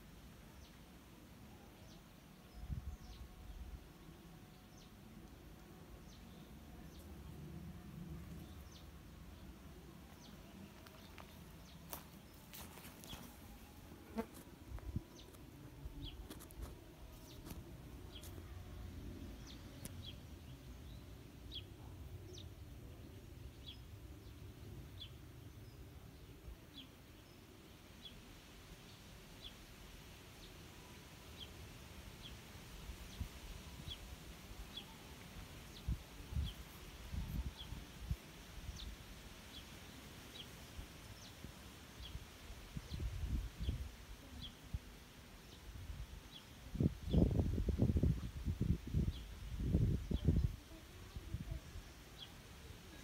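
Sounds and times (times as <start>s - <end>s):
faint low rumble: 2.4s - 27.4s.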